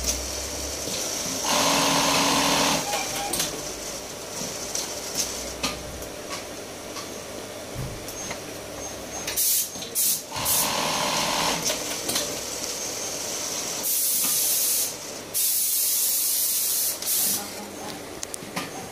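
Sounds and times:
sewing machine whirring: 1.4 - 4.0, 10.3 - 12.0.

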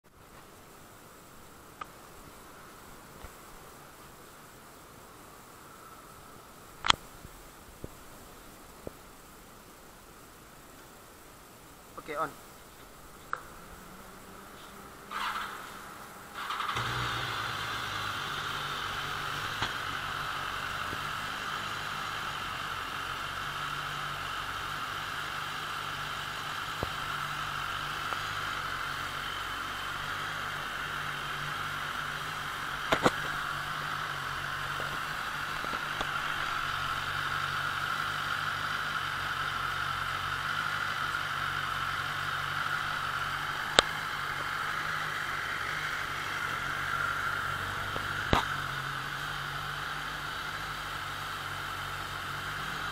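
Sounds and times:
motorcycle engine idling: 13.0 - 52.9
sharp clicks: 32.8 - 33.4.

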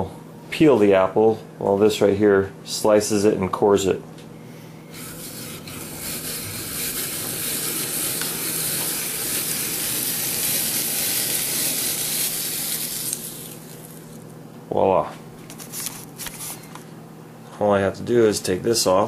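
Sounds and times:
apple peeler scraping hiss: 4.9 - 14.2.

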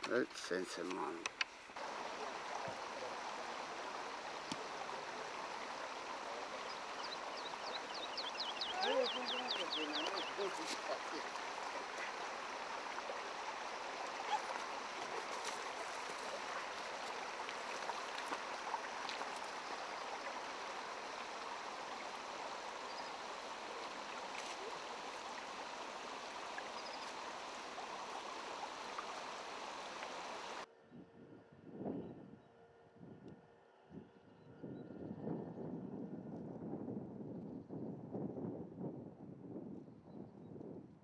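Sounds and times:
stream flowing over stones: 0.0 - 30.7
faint clicks: 0.8 - 1.6, 4.4 - 4.7.

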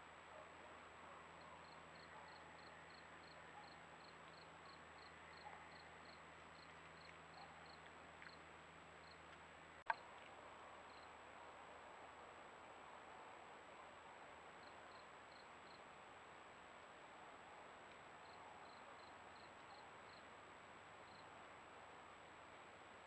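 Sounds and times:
faint high insect chirp: 1.4 - 9.3, 10.9 - 11.2, 14.6 - 16.0, 18.2 - 21.5.

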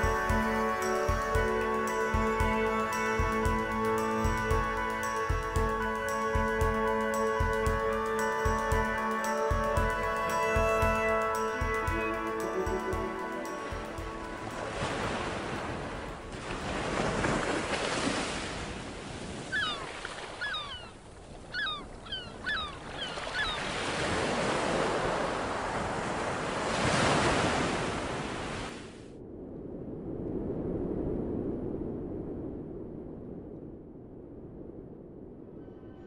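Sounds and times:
ocean surf breaking: 10.6 - 21.5, 22.7 - 29.0
gull cries: 19.5 - 23.7.

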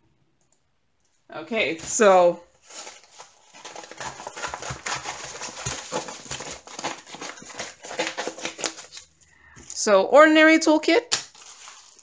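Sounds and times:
plastic packaging crinkling: 1.8 - 9.9, 11.2 - 12.0.

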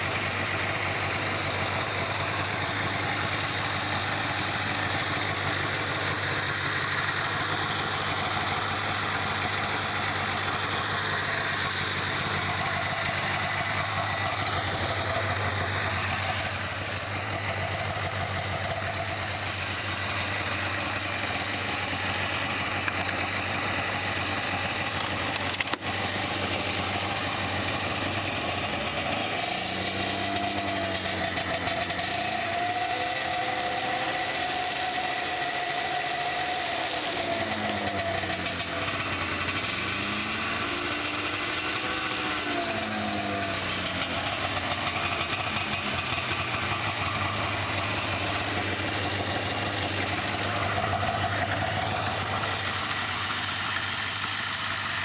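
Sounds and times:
snowmobile engine idling: 0.0 - 55.0.

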